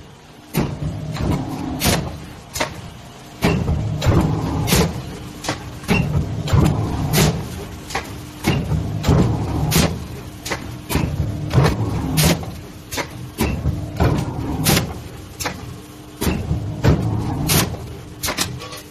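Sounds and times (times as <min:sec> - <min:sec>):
steady machine hum: 0:00.0 - 0:18.9
sharp machine knocks with rumble: 0:00.5 - 0:02.8, 0:03.4 - 0:12.6, 0:16.2 - 0:18.5.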